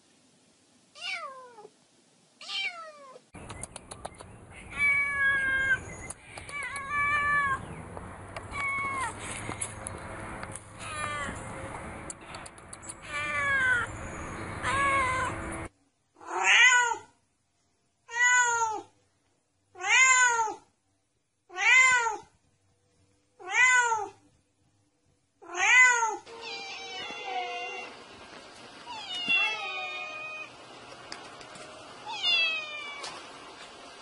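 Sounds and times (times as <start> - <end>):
steady background hiss: 0.0 - 3.4
cat meowing: 1.0 - 1.7, 2.4 - 3.2, 4.7 - 5.8, 6.4 - 7.6, 8.4 - 9.2, 10.7 - 11.4, 13.0 - 13.9, 14.6 - 15.4, 16.2 - 17.1, 18.1 - 18.9, 19.8 - 20.7, 21.5 - 22.3, 23.4 - 24.2, 25.4 - 28.0, 28.9 - 30.5, 32.0 - 33.2.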